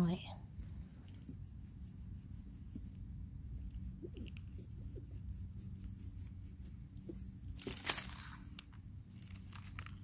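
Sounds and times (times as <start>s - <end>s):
small clicks and rustles: 6.6s - 10.0s.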